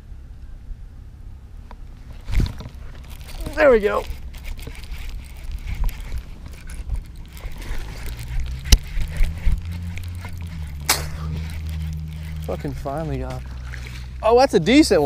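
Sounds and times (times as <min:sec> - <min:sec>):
low steady hum: 0:00.0 - 0:15.0
fishing rod rustle: 0:01.9 - 0:15.0
sharp clicks: 0:02.7 - 0:13.1
fishing reel cranking: 0:02.8 - 0:15.0.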